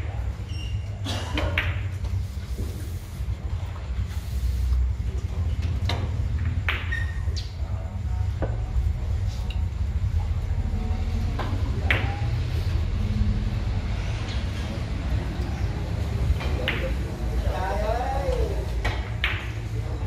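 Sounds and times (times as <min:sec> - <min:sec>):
steady low hum: 0:00.0 - 0:20.0
billiard balls clicking: 0:18.3 - 0:19.7.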